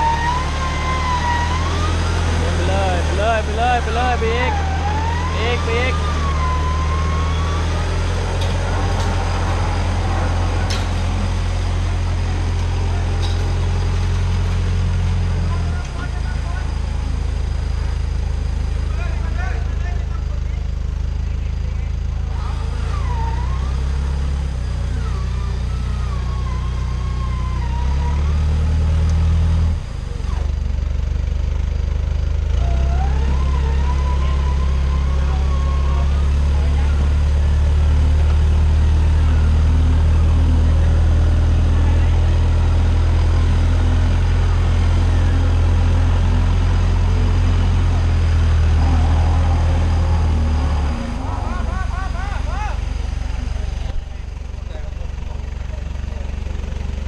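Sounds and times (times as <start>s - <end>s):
wavering mechanical whine: 0.0s - 19.8s, 32.6s - 57.0s
truck engine idling: 0.0s - 57.0s.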